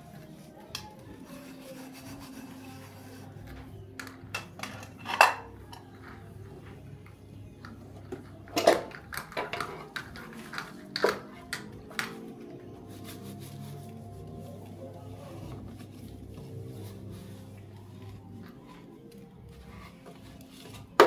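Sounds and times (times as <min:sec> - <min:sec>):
dishes clinking: 0:04.2 - 0:06.0.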